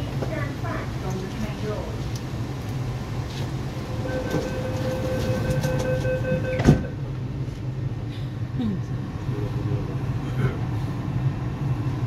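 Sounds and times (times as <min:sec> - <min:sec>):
train humming at platform: 0:00.0 - 0:12.0
door-closing warning tone: 0:03.9 - 0:07.0
train doors shutting with thud: 0:03.9 - 0:07.2.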